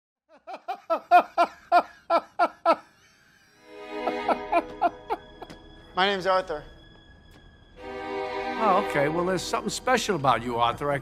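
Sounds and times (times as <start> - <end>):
man laughing: 0.3 - 5.5.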